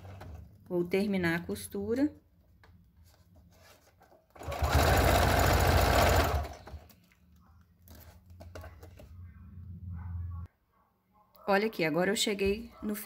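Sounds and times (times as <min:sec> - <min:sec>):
electric sewing machine stitching: 0:04.4 - 0:06.8.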